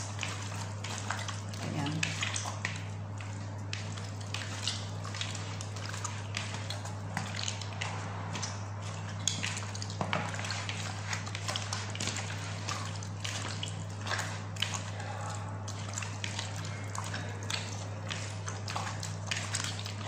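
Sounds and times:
steady low hum: 0:00.0 - 0:20.0
wet squelches of chicken in marinade: 0:00.0 - 0:20.0.

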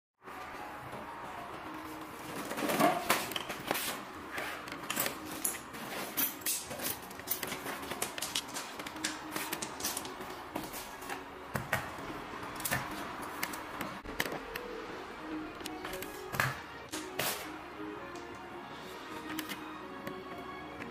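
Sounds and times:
parts clicking: 0:04.6 - 0:10.3.

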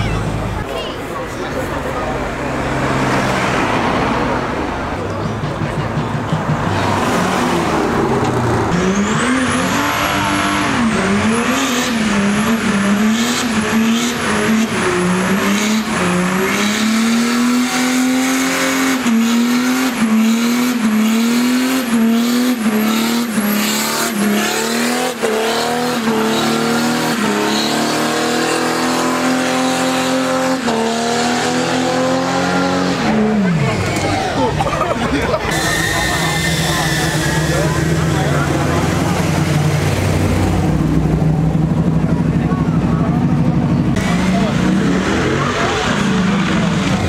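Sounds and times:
car engine revving: 0:00.0 - 0:47.0
tyres squealing: 0:33.3 - 0:38.8.

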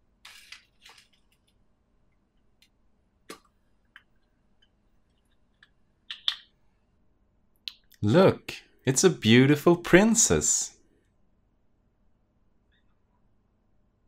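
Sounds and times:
plastic wrapper crinkling: 0:00.2 - 0:01.6
plastic capsule clicks: 0:05.6 - 0:06.5.

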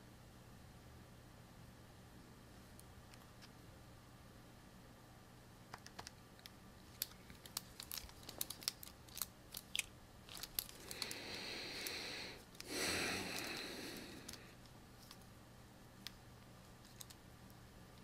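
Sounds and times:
small irregular clicks: 0:05.7 - 0:15.3, 0:16.0 - 0:18.0.

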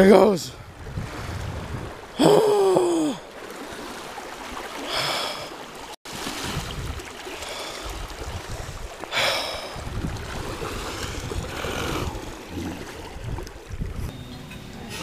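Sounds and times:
wind buffeting microphone: 0:00.6 - 0:02.9, 0:06.4 - 0:14.2
water splash: 0:00.8 - 0:14.1.

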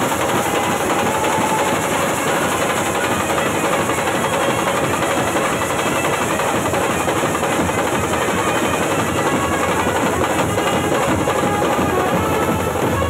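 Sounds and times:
marching bass drums beating: 0:00.0 - 0:13.0.

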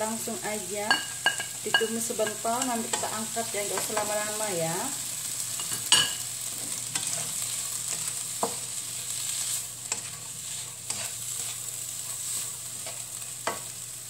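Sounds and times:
vegetables sizzling in oil: 0:00.0 - 0:14.0
spatula knocking and scraping pan: 0:05.6 - 0:08.8, 0:09.8 - 0:13.7.

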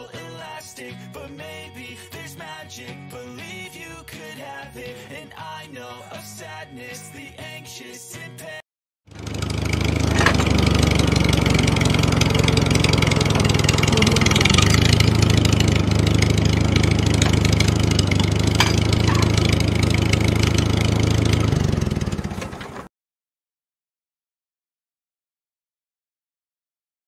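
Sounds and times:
engine idling: 0:09.1 - 0:22.9.

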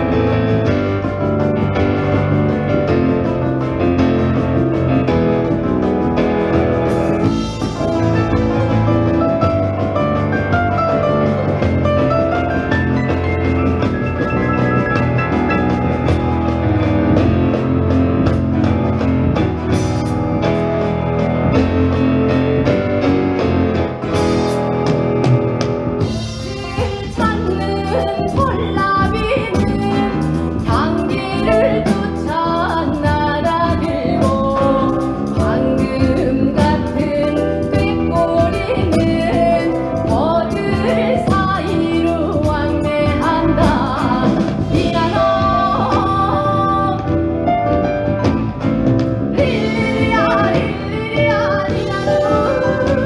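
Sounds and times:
woman singing folk song: 0:26.5 - 0:47.2, 0:49.4 - 0:53.0.

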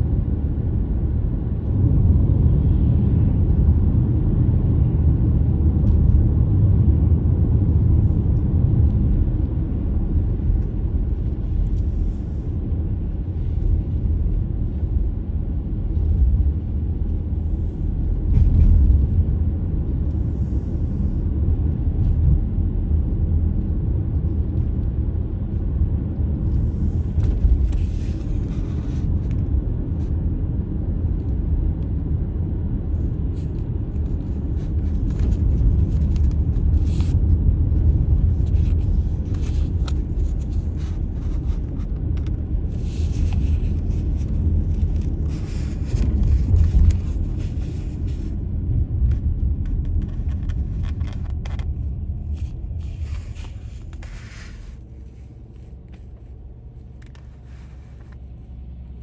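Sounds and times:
car road and engine rumble: 0:00.0 - 0:59.0.

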